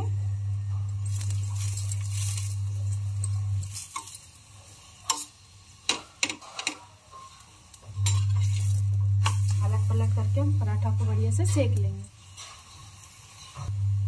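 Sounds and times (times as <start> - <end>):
steady low hum: 0.0 - 3.8, 7.8 - 12.1
oil sizzling on a hot pan: 0.0 - 14.0
steel spoon clicking on pan: 5.0 - 5.3.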